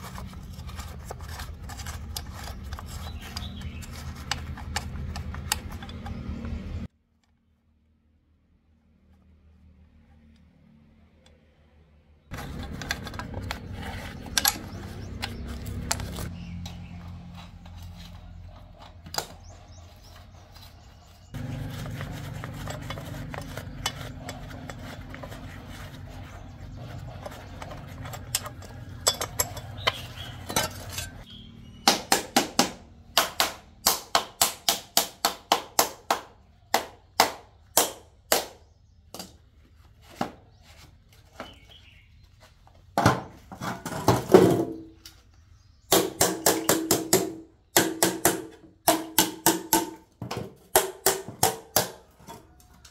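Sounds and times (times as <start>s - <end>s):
steel molds scraped: 0.0s - 6.9s, 12.3s - 31.8s
knocks on steel molds: 45.9s - 52.2s.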